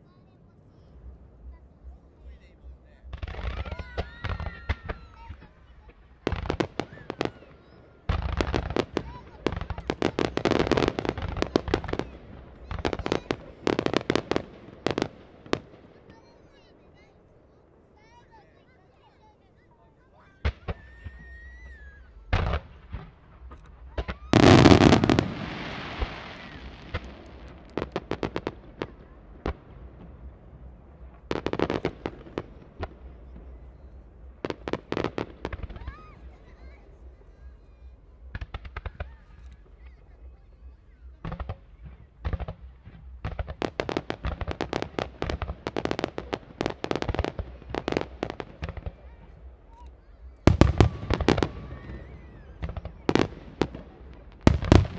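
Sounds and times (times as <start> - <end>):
fireworks bursting: 0.0 - 54.9
fireworks crackling: 0.0 - 54.9
fireworks hiss: 20.2 - 30.0.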